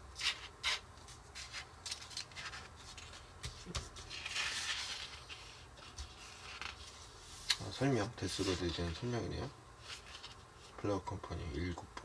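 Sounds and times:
magazine pages rustling: 1.0s - 9.2s, 9.8s - 10.8s.

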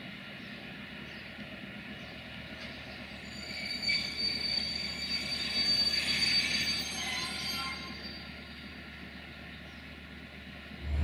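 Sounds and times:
train wheels squealing on rails: 0.2s - 10.2s
low rolling rumble: 10.7s - 11.0s.

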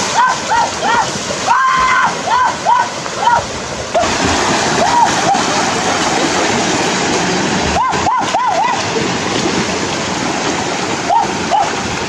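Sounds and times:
stream rushing: 0.0s - 12.0s
person splashing through water: 2.9s - 12.0s.

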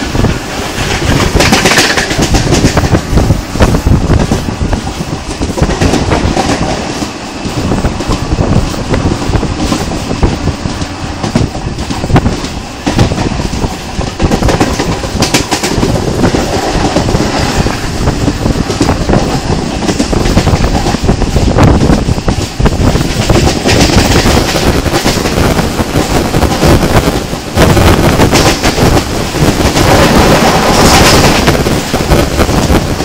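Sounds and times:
wheels clicking over rail joints: 0.0s - 25.4s
train wheels rumbling on rails: 0.0s - 33.0s.

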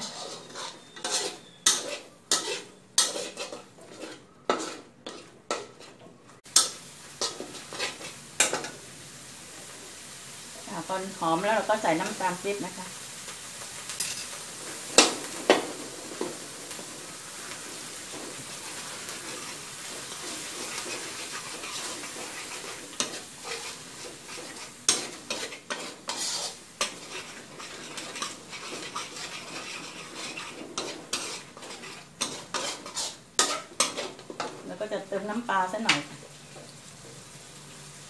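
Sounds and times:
metal spatula scraping a wok: 0.0s - 8.8s, 14.0s - 35.9s
curry paste sizzling in a wok: 0.0s - 38.0s
spatula clacking against pan: 24.4s - 34.6s.

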